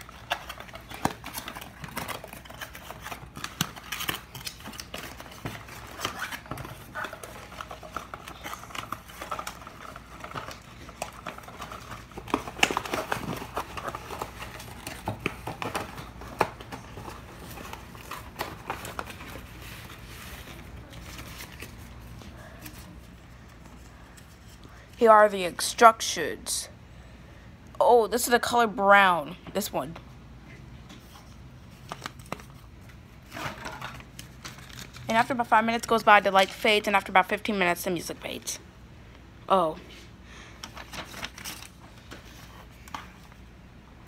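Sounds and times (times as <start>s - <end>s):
cardboard and packaging rustling: 0.0s - 25.0s, 30.8s - 37.3s, 40.6s - 43.5s.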